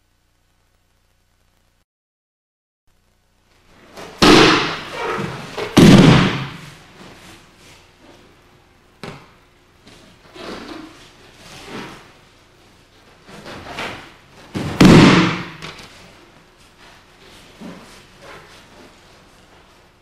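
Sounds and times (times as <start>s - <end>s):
sharp knock: 4.2s - 5.0s, 14.7s - 15.8s
body thudding onto mat: 14.5s - 15.6s
soft movement on mat: 15.9s - 20.0s.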